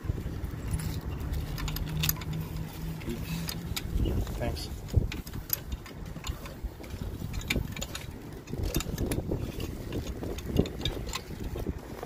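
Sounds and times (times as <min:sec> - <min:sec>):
low uneven rumble: 0:00.0 - 0:12.0
hands handling metal hardware: 0:00.4 - 0:12.0.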